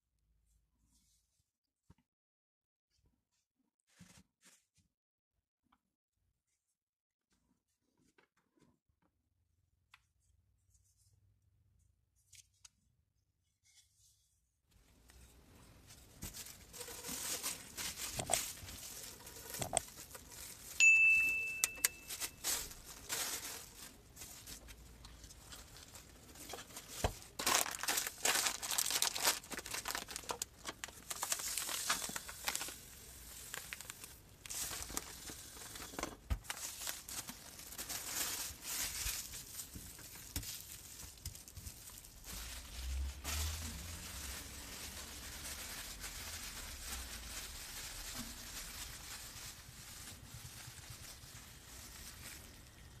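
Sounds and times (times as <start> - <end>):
plastic bags crinkling: 15.8 - 53.0
brief high tone: 20.8 - 22.4.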